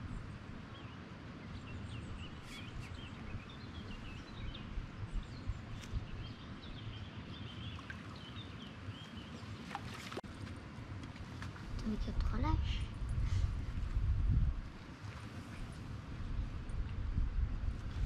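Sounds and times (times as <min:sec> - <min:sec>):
small birds chirping: 0:00.1 - 0:10.1
low outdoor rumble: 0:01.5 - 0:18.0.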